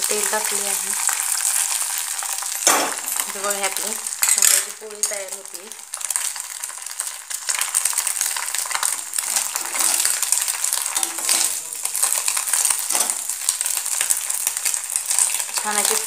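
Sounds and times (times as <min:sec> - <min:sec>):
egg sizzling in oil: 0:00.0 - 0:16.0
metal spatula scraping pan: 0:08.7 - 0:13.4.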